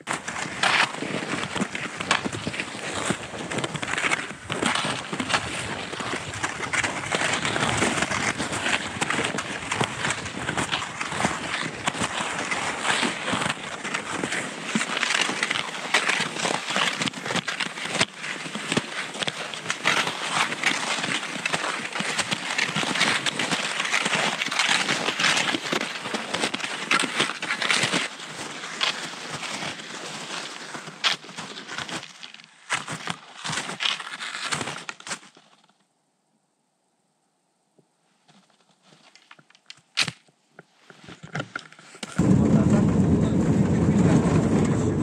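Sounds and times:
footsteps crunching on frozen snow: 0.0s - 35.8s, 38.2s - 42.4s.

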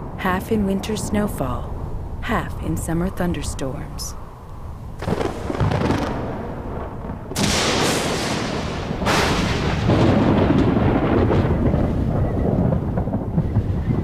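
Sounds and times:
thunder rumbling: 0.0s - 14.0s
sharp thunder cracks: 5.0s - 14.0s.

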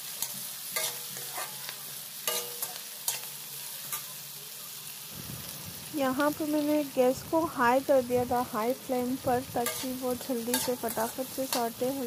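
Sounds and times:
food sizzling in oil: 0.0s - 12.0s
metal spatula scraping pan: 0.1s - 4.1s, 9.6s - 12.0s.

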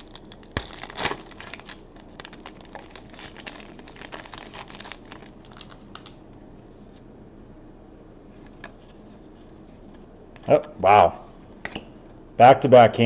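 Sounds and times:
foil wrapper crinkling: 0.0s - 6.2s.

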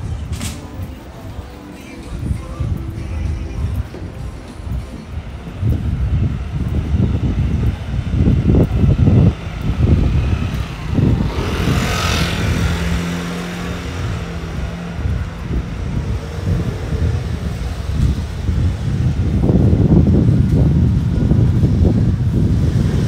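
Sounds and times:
low traffic rumbling: 0.0s - 23.0s
steady engine hum: 0.0s - 23.0s
vehicle passing with hiss: 8.2s - 19.9s.

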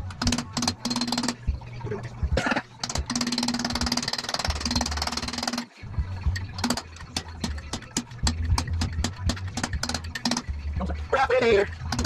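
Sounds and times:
power ratchet rattling: 0.0s - 1.5s, 2.8s - 10.6s
metallic clicks and clinks: 2.8s - 10.5s.

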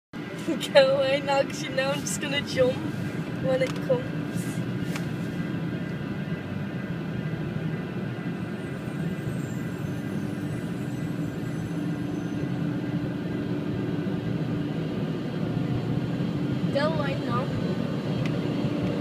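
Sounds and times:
car wash mechanical rumble: 0.2s - 8.8s
car engine idling: 0.2s - 19.0s.

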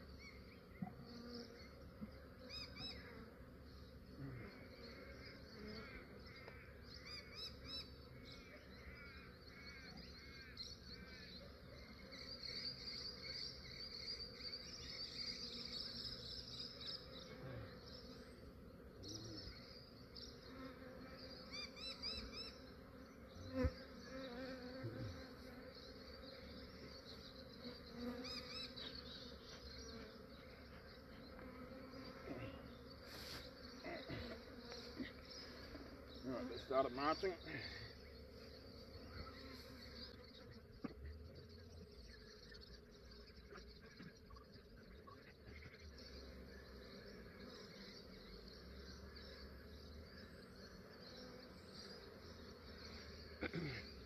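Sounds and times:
bee swarm buzzing: 10.8s - 54.0s.

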